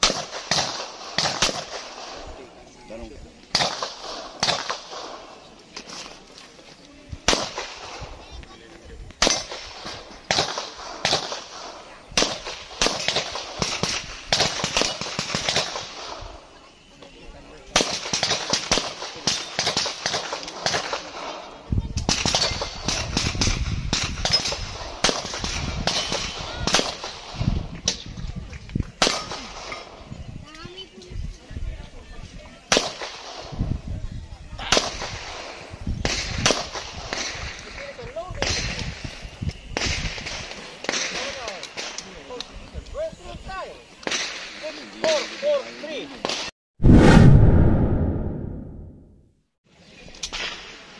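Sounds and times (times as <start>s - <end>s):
pistol shots: 3.5s - 5.2s.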